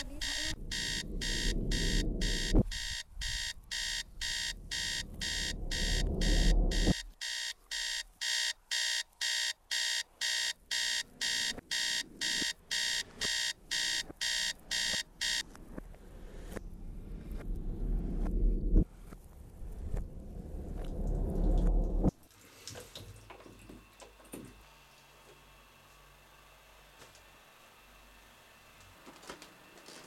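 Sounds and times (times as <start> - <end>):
low rumbling noise: 0.0 - 7.0, 15.4 - 22.1
alarm beeping: 0.0 - 15.4.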